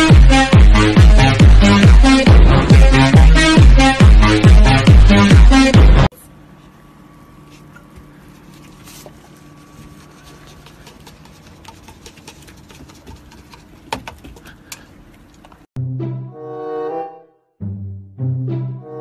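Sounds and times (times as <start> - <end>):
paper cup crinkling and clicks: 8.5 - 15.6.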